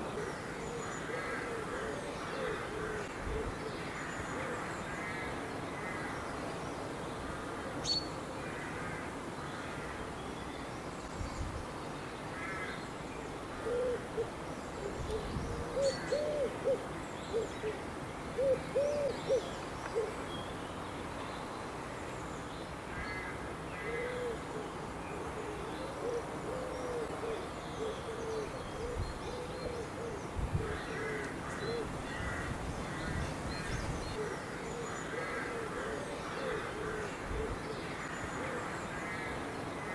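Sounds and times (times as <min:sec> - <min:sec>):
songbirds chirping: 0:00.0 - 0:39.9
pigeon cooing: 0:14.9 - 0:17.7, 0:18.4 - 0:20.1, 0:25.5 - 0:31.9.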